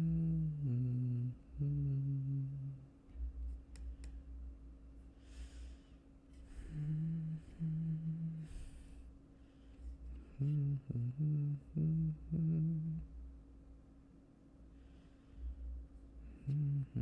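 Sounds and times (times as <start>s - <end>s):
man humming: 0.0s - 3.0s, 6.5s - 9.0s, 10.2s - 13.2s, 16.2s - 17.0s
breathing: 5.1s - 7.6s, 8.4s - 10.5s, 14.7s - 15.8s.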